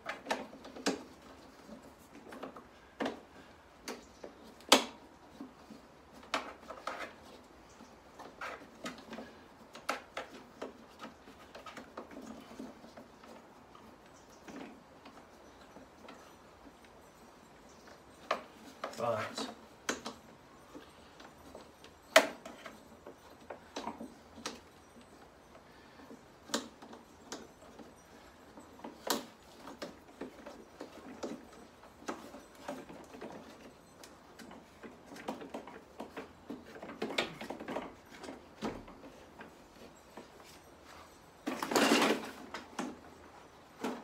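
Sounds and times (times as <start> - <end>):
rustling clatter: 0.0 - 44.0.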